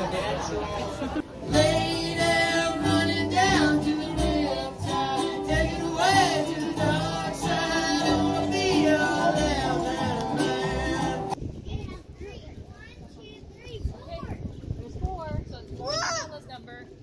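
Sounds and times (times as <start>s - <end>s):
strummed acoustic guitars: 0.0s - 11.4s
upright bass notes: 0.0s - 11.4s
person singing: 1.5s - 11.4s.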